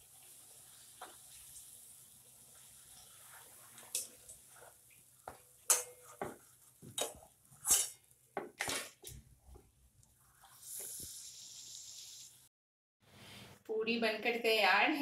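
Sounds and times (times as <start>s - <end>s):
metal utensils scraping a wok: 7.6s - 8.0s.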